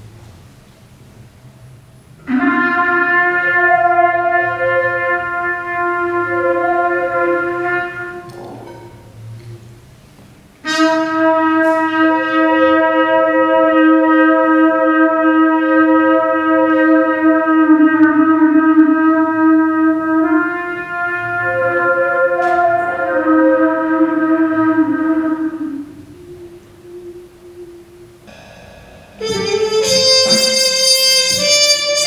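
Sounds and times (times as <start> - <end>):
trumpet holding a note: 2.2 - 8.8, 10.6 - 32.0
crisp percussion strikes: 26.4 - 32.0.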